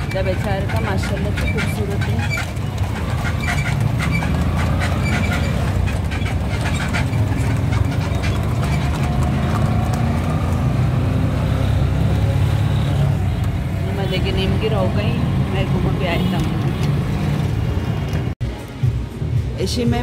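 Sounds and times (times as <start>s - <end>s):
horse hooves clip-clopping: 0.0s - 12.2s
auto-rickshaw engine droning: 0.0s - 18.4s.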